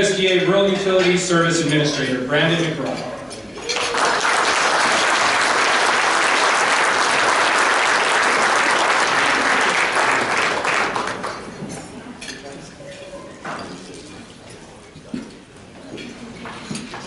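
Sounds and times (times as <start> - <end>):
audience applauding: 3.7 - 11.5.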